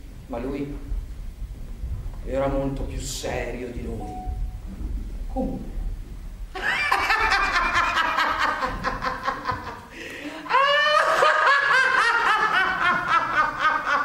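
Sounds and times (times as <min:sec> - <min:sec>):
woman laughing heartily: 0:06.6 - 0:14.0.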